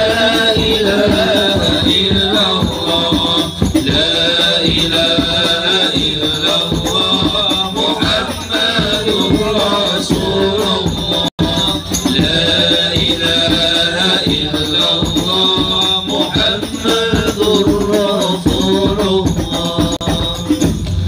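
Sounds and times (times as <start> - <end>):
hand percussion with jingles: 0.0 - 21.0
men singing a devotional chant: 0.0 - 21.0.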